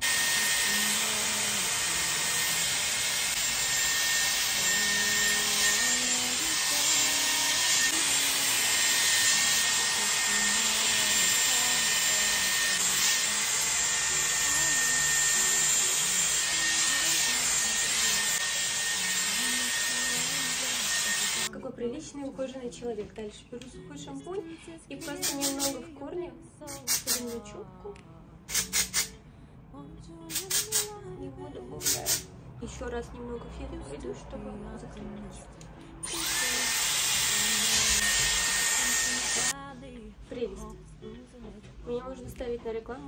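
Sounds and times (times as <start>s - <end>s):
hair dryer running: 0.0s - 21.5s, 25.0s - 25.8s, 36.0s - 39.6s.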